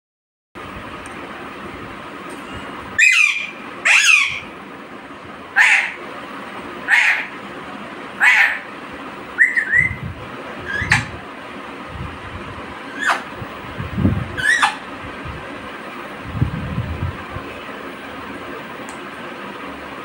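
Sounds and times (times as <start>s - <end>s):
bird calling: 2.4s - 4.6s, 5.5s - 6.1s, 6.8s - 7.4s, 8.2s - 10.0s, 10.6s - 11.2s, 12.8s - 13.4s, 14.4s - 14.9s.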